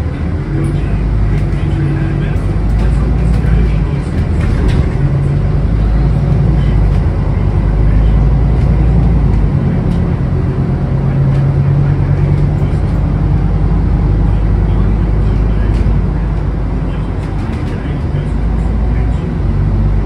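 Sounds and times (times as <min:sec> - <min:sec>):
bus diesel engine droning: 0:00.0 - 0:20.0
road noise: 0:00.0 - 0:20.0
rattling: 0:00.6 - 0:14.4.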